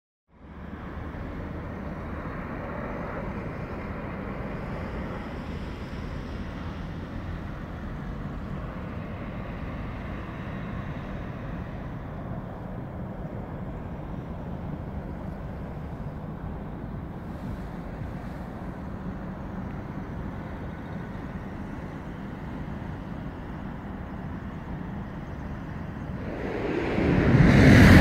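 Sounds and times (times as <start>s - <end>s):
distant vehicle rumble: 25.3s - 28.0s.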